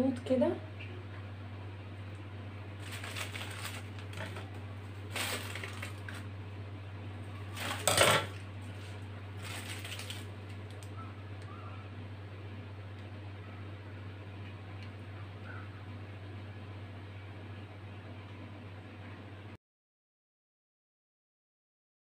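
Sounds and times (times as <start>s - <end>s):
steady low hum: 0.0s - 19.6s
metal utensils clinking on stone: 7.6s - 8.3s.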